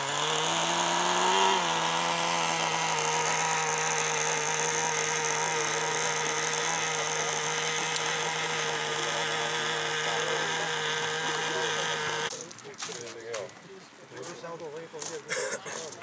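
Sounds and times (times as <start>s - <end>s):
small high-revving boat motor: 0.0s - 12.3s.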